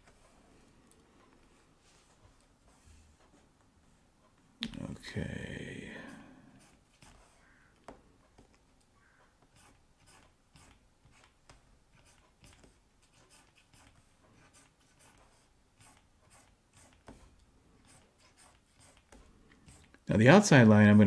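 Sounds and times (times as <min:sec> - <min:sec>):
stylus scratching on tablet: 0:06.1 - 0:07.7, 0:09.5 - 0:20.0.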